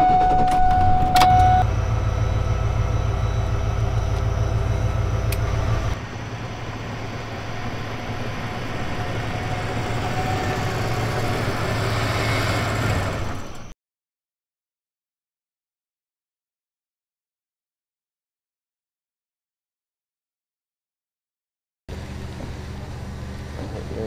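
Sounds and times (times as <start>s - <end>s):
car engine running: 0.1s - 13.7s, 21.9s - 24.0s
lighter engine noise: 1.6s - 13.7s.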